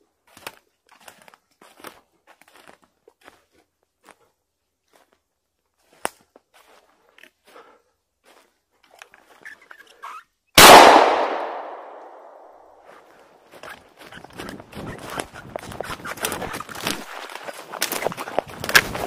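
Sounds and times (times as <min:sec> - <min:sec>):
shotgun shot echoing: 0:10.6 - 0:12.6
footsteps crunching dry leaves: 0:13.0 - 0:19.0.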